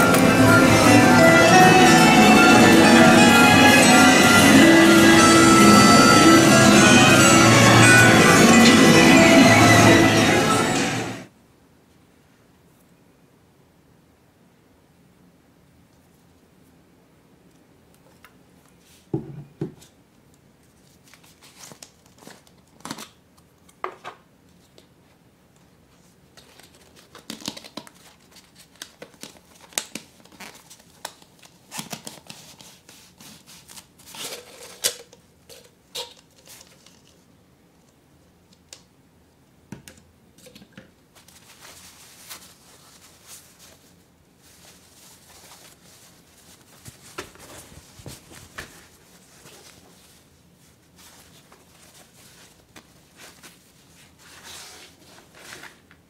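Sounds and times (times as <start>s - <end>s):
hard plastic packaging clicks and crinkles: 21.0s - 24.9s, 26.3s - 37.2s
cloth bag rustling: 41.2s - 55.7s.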